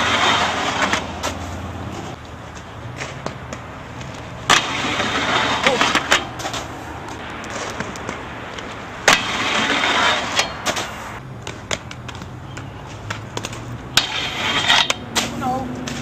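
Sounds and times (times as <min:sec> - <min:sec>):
skate grinding scrape: 0:00.0 - 0:16.0
skate wheels rolling on concrete: 0:00.0 - 0:16.0
skates clacking: 0:00.0 - 0:16.0.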